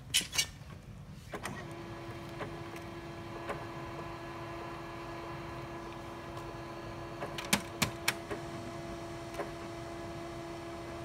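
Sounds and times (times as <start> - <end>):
printer drive motor humming: 1.4 - 11.0
printer clicks: 7.2 - 8.4.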